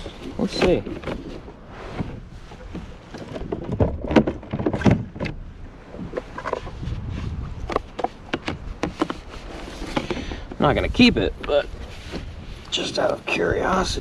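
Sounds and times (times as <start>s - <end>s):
gear knocking on plastic kayak: 7.6s - 10.8s.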